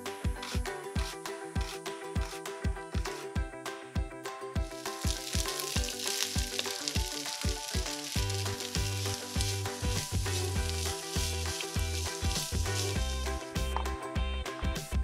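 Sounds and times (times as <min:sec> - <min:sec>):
background music with steady beat: 0:00.0 - 0:15.0
food sizzling in a frying pan: 0:05.0 - 0:13.2.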